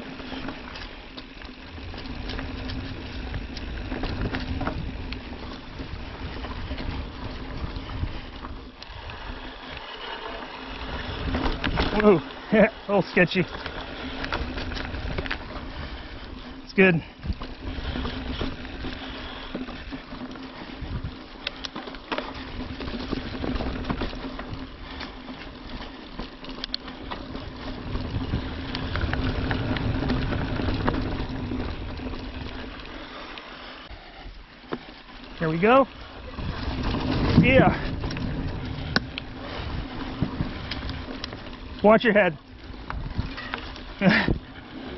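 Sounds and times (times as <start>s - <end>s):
bike clicks and rattles: 0.0s - 44.9s
bike tyres on dirt trail: 0.0s - 44.9s
wind rumble on microphone: 1.8s - 9.5s, 20.6s - 21.3s, 27.1s - 32.7s, 36.0s - 41.8s, 42.6s - 44.9s.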